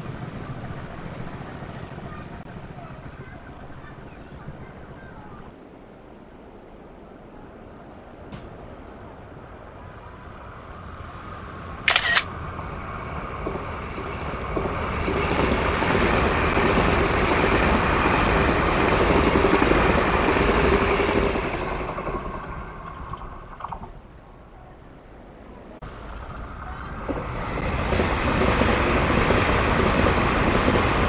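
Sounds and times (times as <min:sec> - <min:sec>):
passenger train rushing past: 0:00.0 - 0:23.6, 0:24.3 - 0:31.0
sharp double click: 0:11.9 - 0:12.3.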